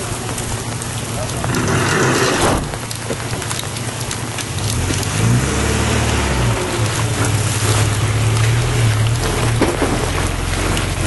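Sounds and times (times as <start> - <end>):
rain on wet road: 0.0 - 11.0.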